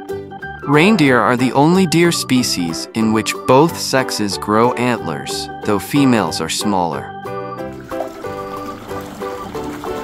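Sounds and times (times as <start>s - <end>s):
background music: 0.0s - 10.0s
water sloshing in a tub: 7.7s - 10.0s.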